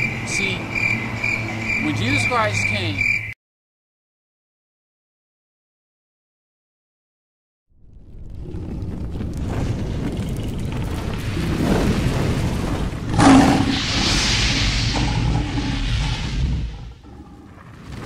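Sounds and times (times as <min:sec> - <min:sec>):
low rumble: 0:07.8 - 0:18.0
rushing fire-like hiss: 0:11.1 - 0:17.3
loud boom: 0:11.2 - 0:17.1.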